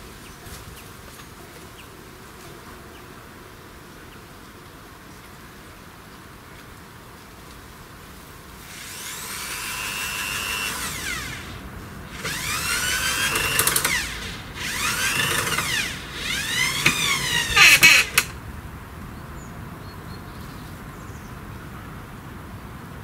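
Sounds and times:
electric drill motor whining: 8.6 - 18.4.

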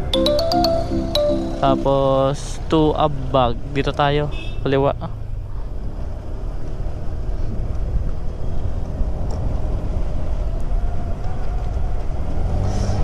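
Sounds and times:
wind rumble on microphone: 7.1 - 13.0.

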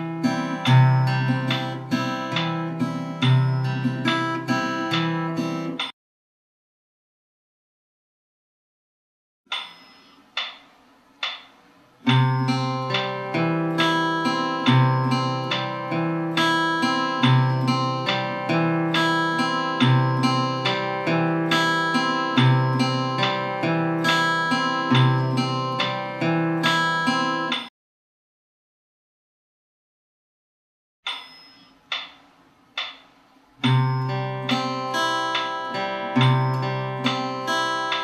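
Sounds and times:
fingerpicked acoustic guitar: 0.0 - 5.9, 12.0 - 27.6, 33.6 - 38.0.

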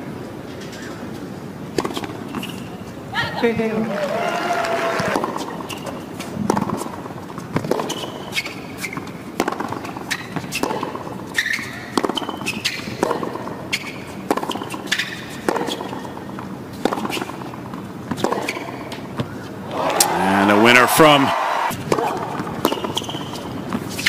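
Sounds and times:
sneaker squeaks: 0.5 - 1.2, 1.8 - 3.0, 5.1 - 20.1, 21.7 - 24.0
tennis ball bouncing: 1.7 - 2.7, 5.0 - 24.0
tennis racket striking ball: 5.1 - 11.2, 11.8 - 13.6, 14.2 - 20.8, 21.7 - 24.0.

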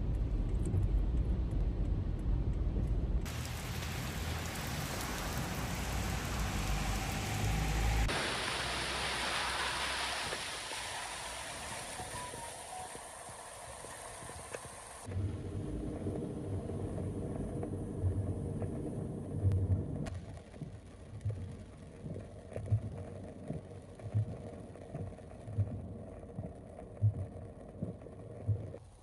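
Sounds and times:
low rumble inside car: 0.0 - 3.9, 15.0 - 28.8
floodwater splashing against vehicle: 3.3 - 18.8.

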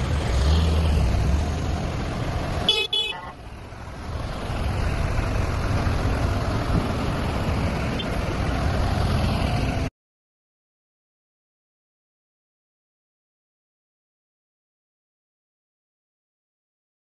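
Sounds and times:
vehicle engines droning: 0.0 - 9.9
horn toot: 2.7 - 3.4.

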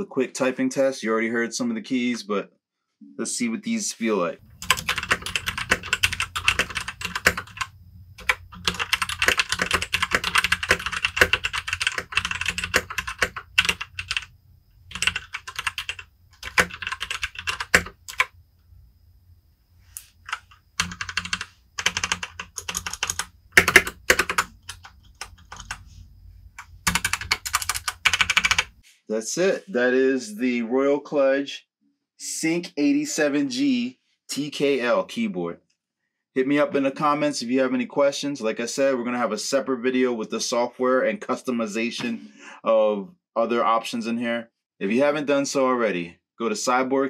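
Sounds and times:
mechanical keyboard typing: 4.6 - 14.3, 14.9 - 18.3, 20.2 - 25.8, 26.6 - 28.8.

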